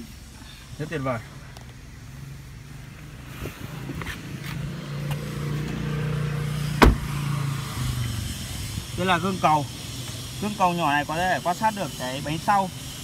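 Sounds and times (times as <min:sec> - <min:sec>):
car engine idling: 0:00.0 - 0:13.0
sharp thump: 0:06.8 - 0:07.2.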